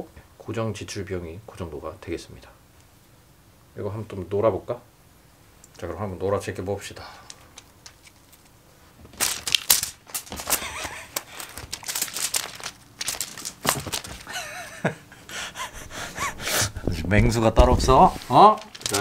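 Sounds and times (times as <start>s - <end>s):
crinkly cat toy rustling: 7.2s - 14.6s, 17.6s - 19.0s.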